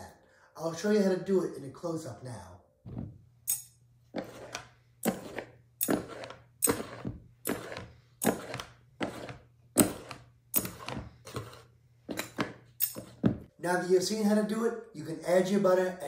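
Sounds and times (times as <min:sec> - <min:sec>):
knives scraping through flour: 0:04.1 - 0:13.2.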